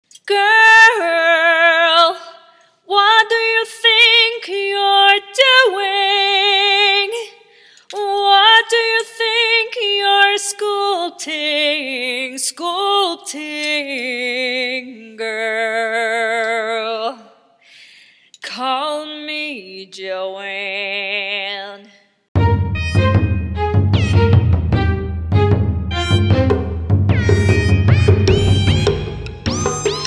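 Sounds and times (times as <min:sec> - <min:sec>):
woman singing a cappella: 0:00.0 - 0:17.5, 0:18.4 - 0:22.1.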